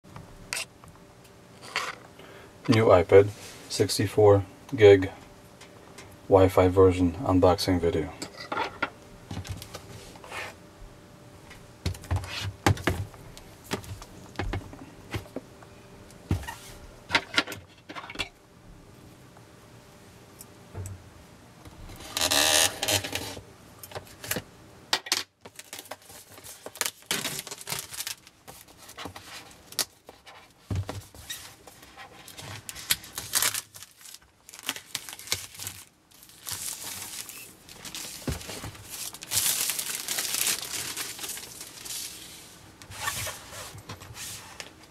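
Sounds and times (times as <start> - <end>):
plastic wrap tearing: 22.0 - 23.4, 25.5 - 30.0, 32.2 - 42.2.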